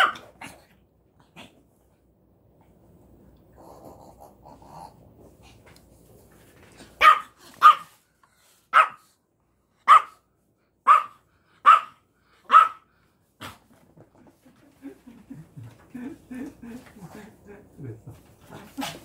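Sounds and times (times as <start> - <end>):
small dog barking: 0.0 - 0.3, 7.0 - 8.0, 8.7 - 9.1, 9.8 - 10.2, 10.8 - 12.9.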